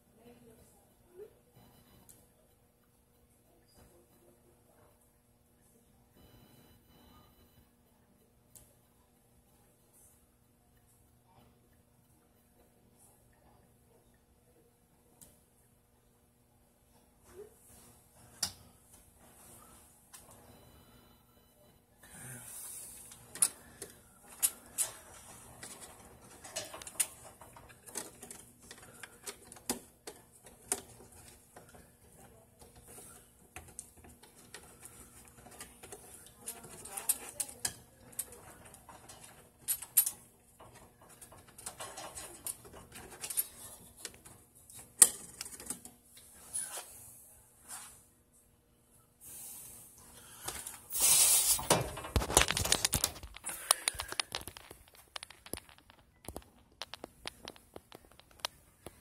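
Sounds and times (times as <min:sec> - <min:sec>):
faint steady hum: 0:00.0 - 0:59.0
hands handling wiring and plastic: 0:23.1 - 0:46.3, 0:51.5 - 0:59.0.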